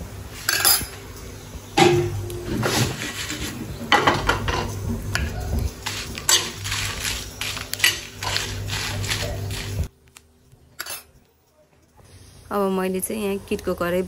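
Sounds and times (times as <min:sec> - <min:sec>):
metal spoon scraping pan: 0:05.8 - 0:09.8.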